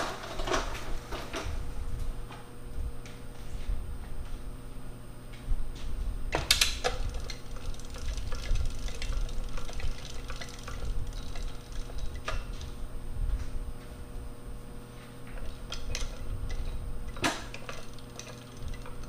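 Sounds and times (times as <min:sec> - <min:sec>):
hand winch cranking: 0:06.6 - 0:12.6, 0:17.1 - 0:19.0.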